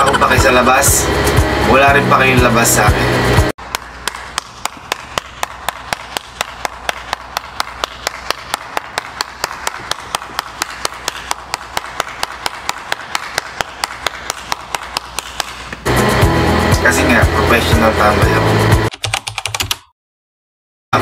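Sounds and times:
person clapping hands: 3.6 - 15.9.

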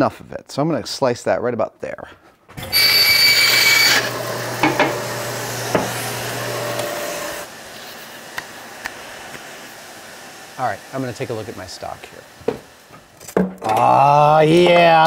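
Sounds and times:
bandsaw cutting plastic: 2.6 - 9.5.

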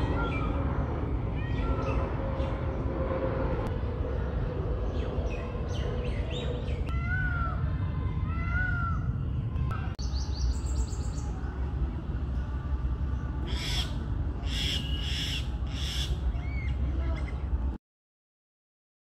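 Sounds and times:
low rumble: 0.0 - 14.4
harsh rasping bird calls: 13.5 - 17.4.

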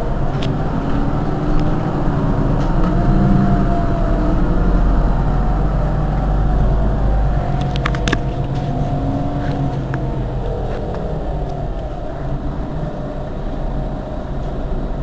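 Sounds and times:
bus engine idling: 0.0 - 15.0
clicks: 7.4 - 12.0.

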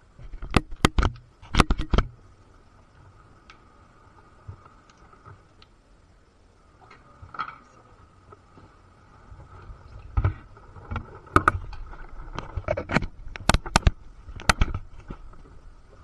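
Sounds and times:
faint ticks: 0.2 - 5.8.

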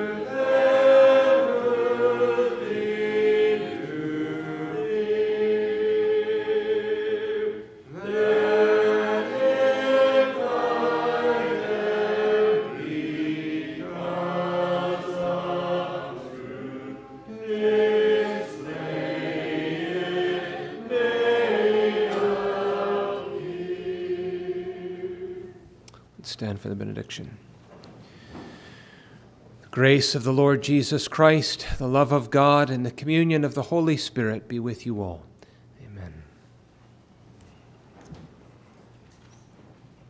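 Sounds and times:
congregation singing a psalm: 0.0 - 25.8.

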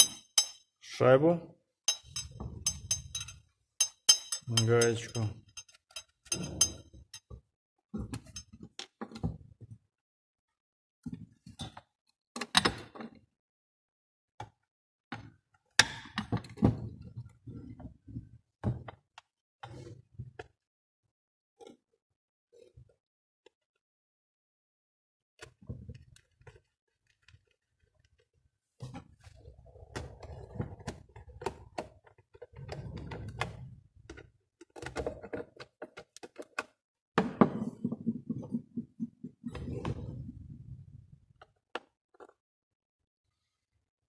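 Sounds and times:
plastic parts knocking and clattering: 29.9 - 40.1.

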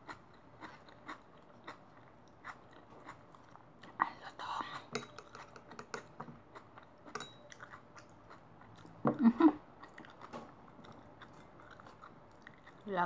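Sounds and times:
chewing crunchy vegetables: 0.0 - 4.0, 6.4 - 9.0, 9.7 - 13.0.

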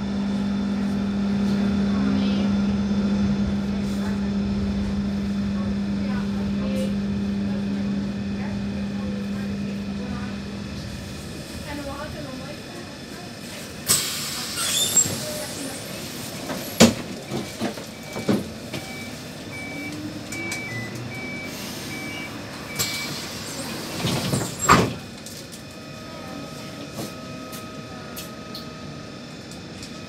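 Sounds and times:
short warning beeps: 17.3 - 23.2.

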